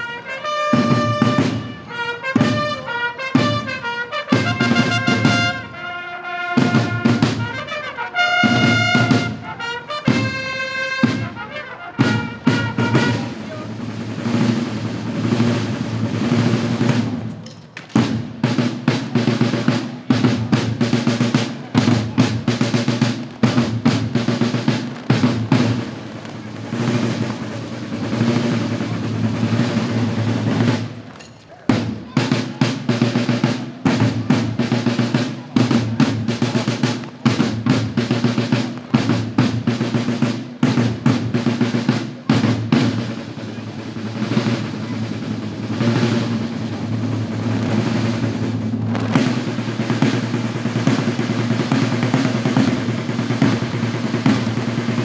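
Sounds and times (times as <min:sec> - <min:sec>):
snare drum rolls: 0:00.0 - 0:55.0
bass drum beats: 0:18.0 - 0:31.1, 0:44.3 - 0:55.0.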